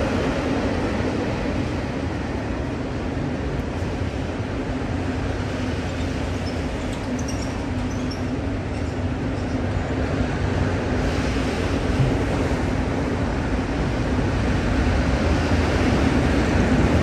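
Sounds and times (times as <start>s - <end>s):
freight train rumble: 0.0s - 17.0s
faint high squeaks: 6.4s - 9.6s.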